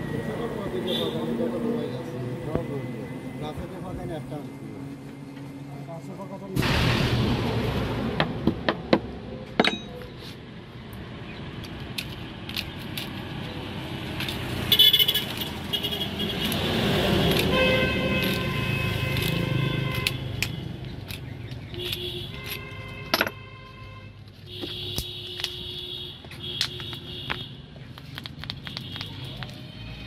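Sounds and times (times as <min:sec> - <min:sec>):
passing traffic: 0:00.0 - 0:30.0
vehicle horns honking: 0:00.8 - 0:01.5, 0:14.6 - 0:20.7, 0:21.8 - 0:27.7.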